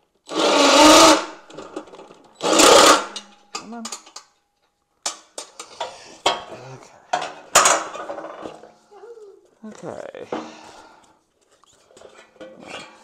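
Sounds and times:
parts clicking and knocking: 1.5s - 8.7s
cordless driver spinning: 2.4s - 3.1s.

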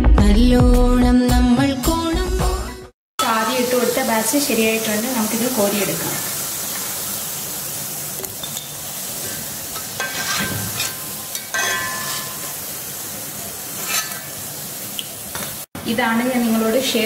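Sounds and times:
oil sizzling in a wok: 3.2s - 17.0s
metal skimmer scraping a pan: 9.2s - 12.6s, 13.7s - 14.4s.

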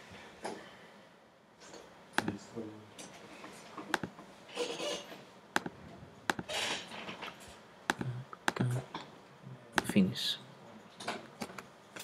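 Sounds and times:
computer mouse clicks: 2.2s - 2.4s, 3.9s - 4.2s, 5.6s - 6.5s, 7.9s - 8.8s.

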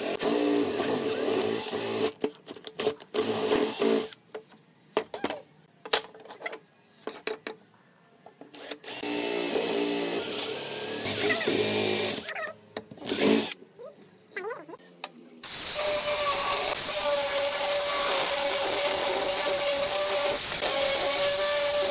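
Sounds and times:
cordless drill boring into wood: 0.0s - 2.1s, 8.6s - 12.3s, 13.1s - 13.6s, 15.4s - 21.9s.

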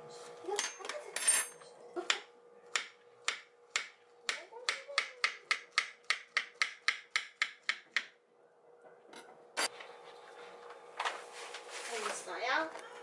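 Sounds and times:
knife chopping on wooden board: 2.1s - 8.2s.

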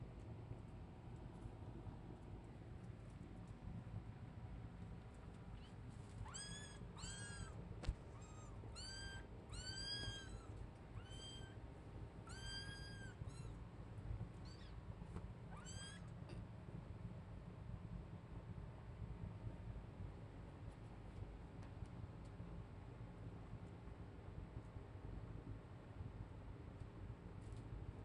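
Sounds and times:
kitten mewing: 6.2s - 11.6s, 12.2s - 13.5s, 15.5s - 16.1s.

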